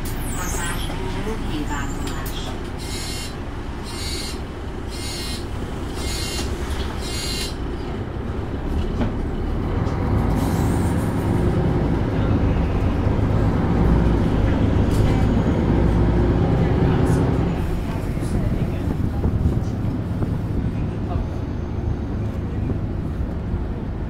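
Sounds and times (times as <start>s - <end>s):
bus engine running: 0.0s - 24.0s
short high-pitched beeps: 2.9s - 5.4s, 6.0s - 7.6s.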